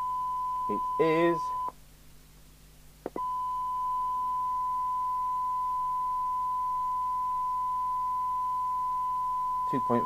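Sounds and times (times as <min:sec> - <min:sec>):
steady test tone: 0:03.1 - 0:10.0.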